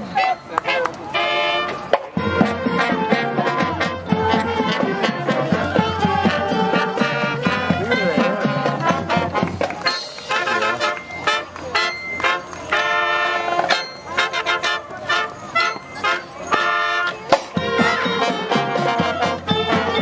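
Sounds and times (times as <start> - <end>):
brass instruments: 0.0 - 20.0
steady drum beat: 1.9 - 11.4, 17.3 - 20.0.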